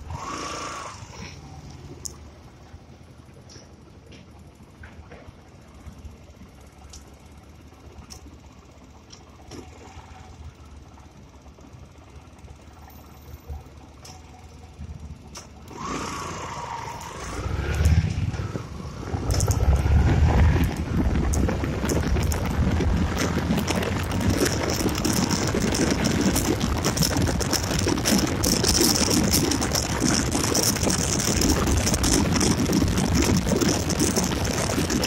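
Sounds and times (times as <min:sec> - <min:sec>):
motorcycle engine accelerating: 0:00.0 - 0:02.3, 0:08.9 - 0:35.0
wind rumble on microphone: 0:16.7 - 0:35.0.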